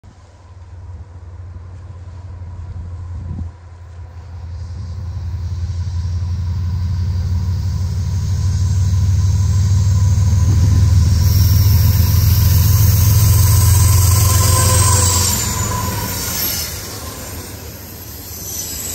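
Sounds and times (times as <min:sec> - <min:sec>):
diesel locomotive engine rumble: 0:00.0 - 0:18.9.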